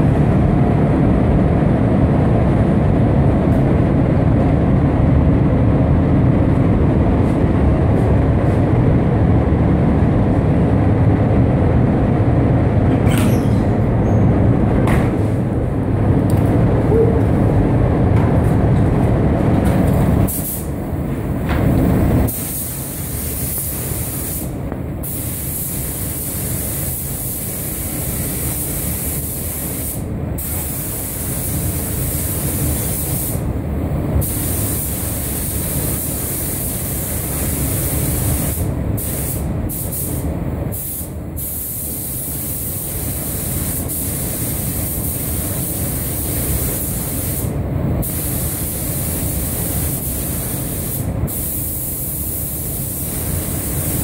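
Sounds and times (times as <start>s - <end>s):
steady low rumble: 0.0s - 54.0s
paint spray gun hissing: 22.3s - 33.4s, 34.2s - 54.0s.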